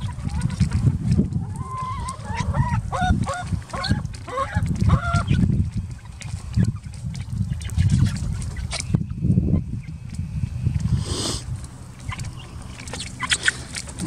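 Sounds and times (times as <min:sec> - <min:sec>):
steady low rumble: 0:09.9 - 0:14.0
hen calling: 0:11.0 - 0:14.0.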